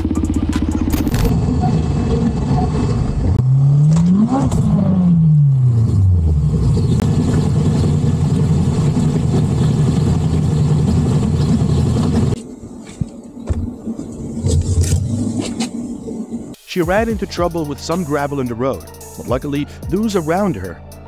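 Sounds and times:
vehicle engine running: 0:00.0 - 0:03.6, 0:04.5 - 0:12.4
road and wind noise: 0:00.0 - 0:16.6.

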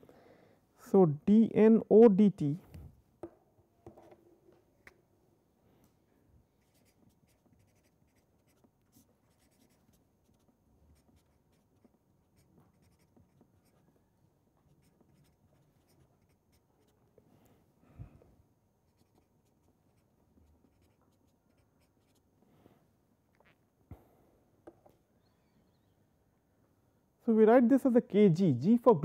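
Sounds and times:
pen writing on paper: 0:06.6 - 0:13.8, 0:14.8 - 0:16.9, 0:18.9 - 0:22.2.

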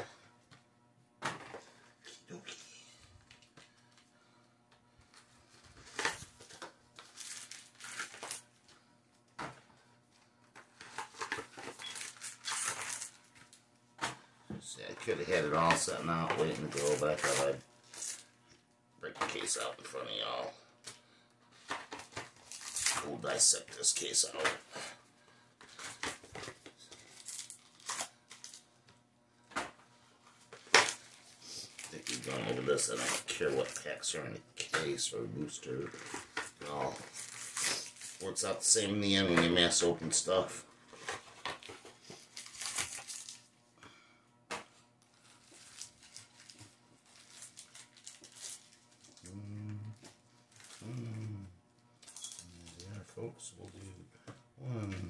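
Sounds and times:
foil packs rustling and scraping: 0:05.2 - 0:08.6, 0:10.6 - 0:13.5, 0:14.8 - 0:18.4, 0:21.5 - 0:24.4, 0:25.6 - 0:28.6, 0:30.4 - 0:34.2, 0:34.9 - 0:43.5, 0:45.1 - 0:49.2.

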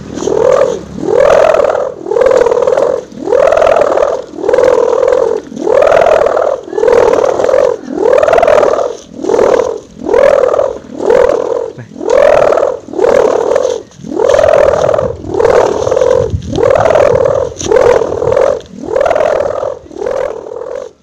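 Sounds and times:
kite hummer bow humming: 0:00.0 - 0:21.0.

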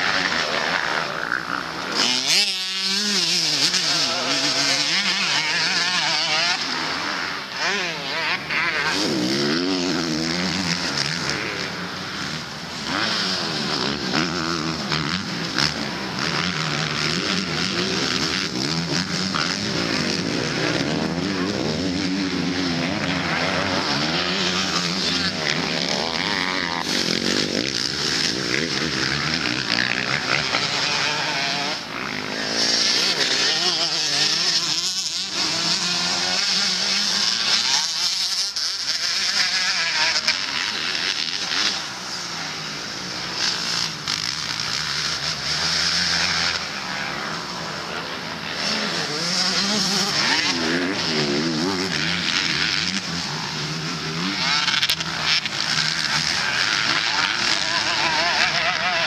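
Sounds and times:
motocross bikes revving: 0:00.0 - 0:59.0.

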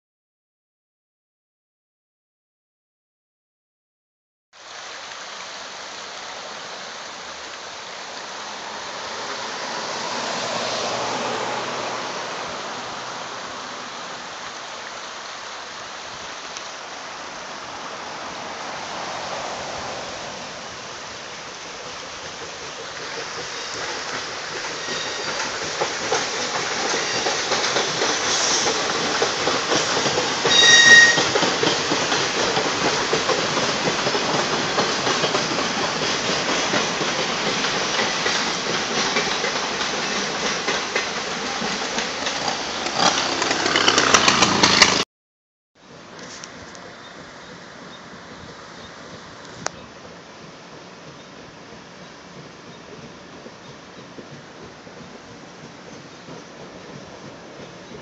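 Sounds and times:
train wheels rumbling: 0:06.2 - 0:45.0, 0:45.9 - 0:58.0
shrill whistle tone: 0:30.5 - 0:31.3.

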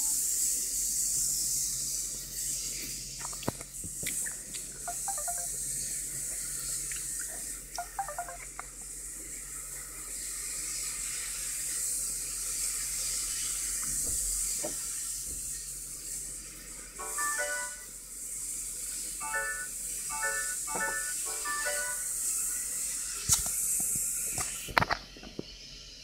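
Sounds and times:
mobile phone key beeps: 0:04.9 - 0:05.5, 0:07.8 - 0:08.5.

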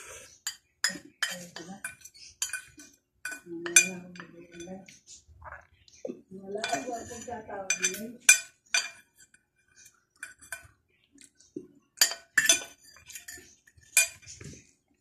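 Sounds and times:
cutlery clinking against glass dish: 0:00.4 - 0:05.0, 0:06.6 - 0:10.8, 0:12.0 - 0:14.7.

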